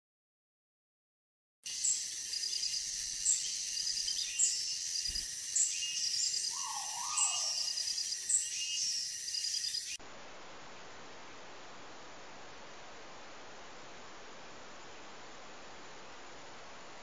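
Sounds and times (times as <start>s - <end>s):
bird call falling and rising: 1.7s - 10.0s
hiss: 1.7s - 10.0s
shrill insect chorus: 1.7s - 10.0s.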